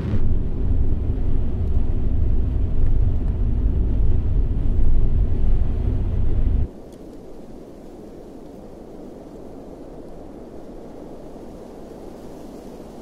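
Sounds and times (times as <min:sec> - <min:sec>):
low steady rumble: 0:00.0 - 0:06.7.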